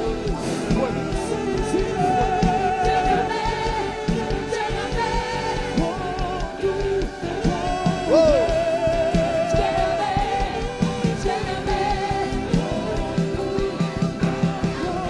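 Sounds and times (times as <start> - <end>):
person singing: 0.0 - 15.0
worship band playing: 0.0 - 15.0.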